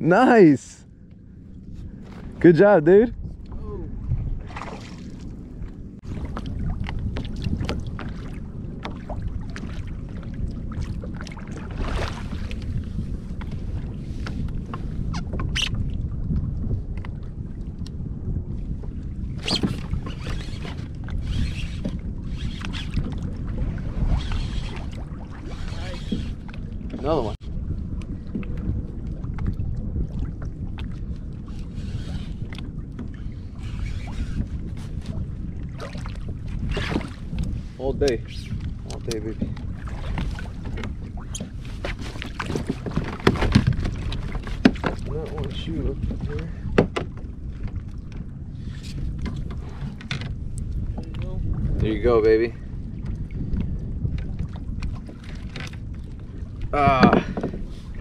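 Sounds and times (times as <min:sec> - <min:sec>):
water lapping against kayak: 0:00.0 - 0:58.0
wind rumbling on microphone: 0:00.0 - 0:58.0.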